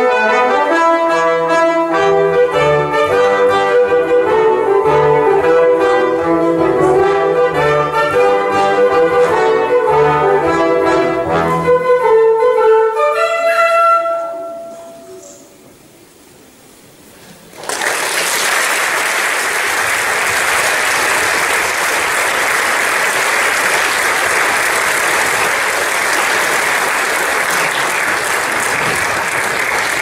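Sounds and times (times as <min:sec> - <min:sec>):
orchestra chord: 0:00.0 - 0:15.2
audience applauding: 0:17.5 - 0:30.0.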